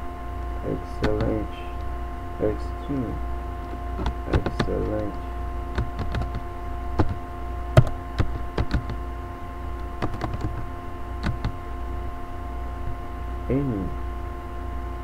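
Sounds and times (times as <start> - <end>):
faint steady tones: 0.0 - 15.0
steady electrical hum: 0.0 - 15.0
keyboard keys clicking: 1.0 - 1.4, 4.0 - 5.2, 5.8 - 6.4, 7.0 - 7.2, 7.8 - 9.0, 10.0 - 11.6.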